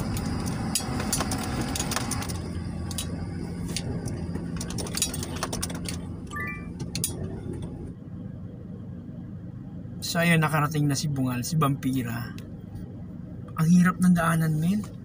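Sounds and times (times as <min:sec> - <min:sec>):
loose things rattling in vehicle: 0:00.0 - 0:08.0
vehicle engine at low speed: 0:00.0 - 0:15.0.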